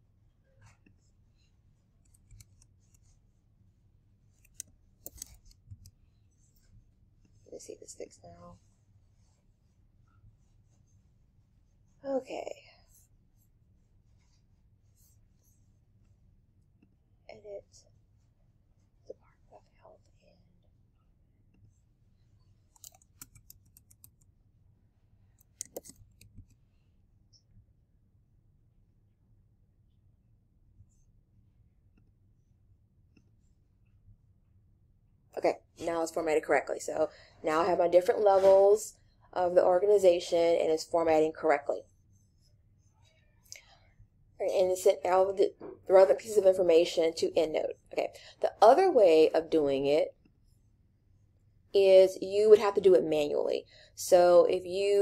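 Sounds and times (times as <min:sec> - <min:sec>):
keyboard and mouse clicks: 0:02.0 - 0:02.7, 0:04.4 - 0:06.0, 0:22.8 - 0:24.3, 0:25.4 - 0:26.6.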